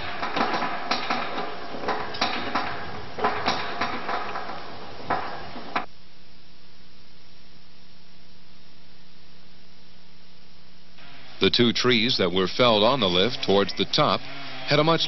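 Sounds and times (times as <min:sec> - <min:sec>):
metallic clanks and knocks: 0:00.0 - 0:05.9
steady low hum: 0:00.0 - 0:15.0.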